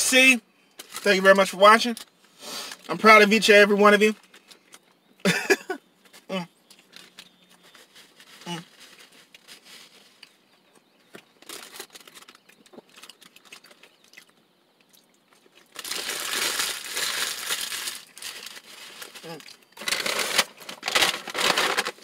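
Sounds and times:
paper wrapper crinkling: 0.8 - 2.9, 6.1 - 10.4, 11.2 - 14.3, 15.4 - 22.0
faint chewing: 6.0 - 15.8.

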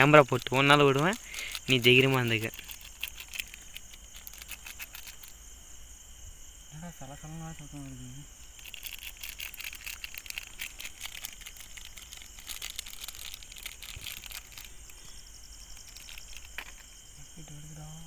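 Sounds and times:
quick crackling clicks: 0.0 - 5.4, 8.4 - 15.0, 15.7 - 16.9
insect chirring: 0.0 - 18.0.

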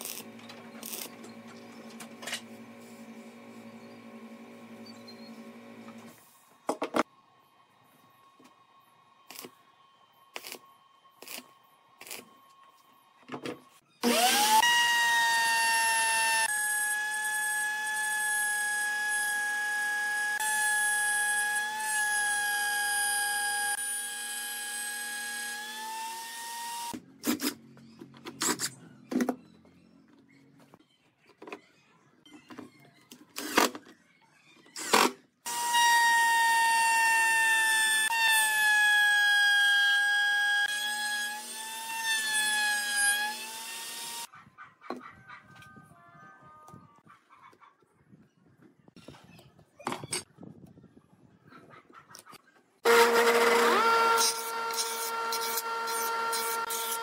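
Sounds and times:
electric motor whining: 14.0 - 27.0, 52.8 - 57.0.

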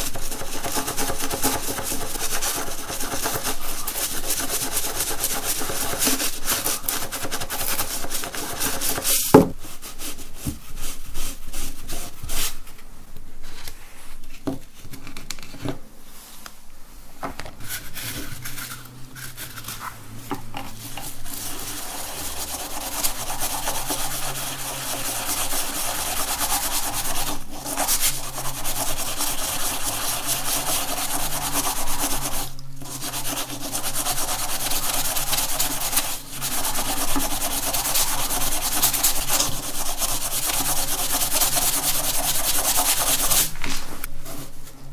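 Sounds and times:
toothbrush scrubbing a coin: 0.0 - 9.2, 17.6 - 19.9, 20.7 - 43.5.

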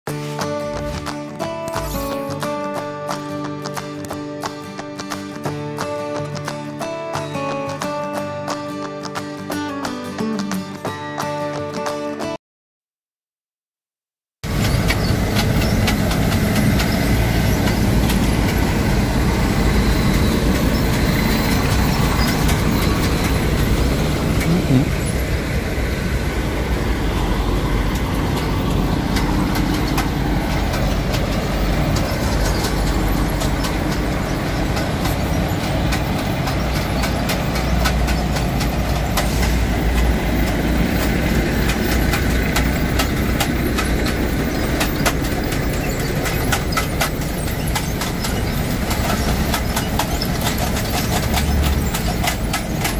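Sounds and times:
heavy diesel engines rumbling: 0.2 - 2.6, 14.4 - 52.9.

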